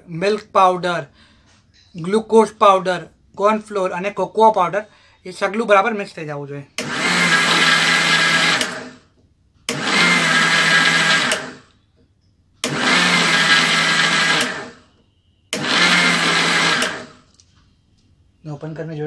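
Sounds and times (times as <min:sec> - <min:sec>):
mixer grinder motor hum: 0:06.8 - 0:11.8, 0:12.6 - 0:14.8, 0:15.6 - 0:17.2.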